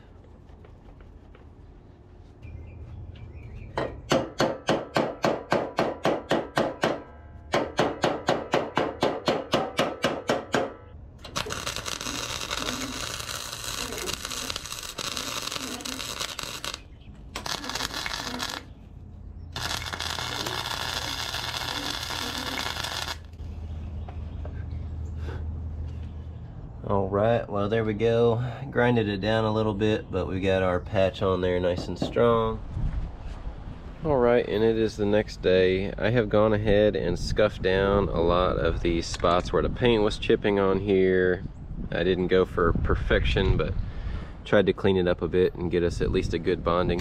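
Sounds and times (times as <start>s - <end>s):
welder arc crackling: 11.2s - 18.8s, 19.5s - 23.4s.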